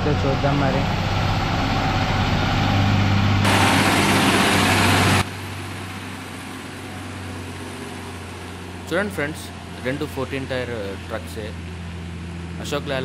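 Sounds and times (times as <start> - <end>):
truck diesel engine drone: 0.0 - 13.0
loud hiss: 3.4 - 6.7.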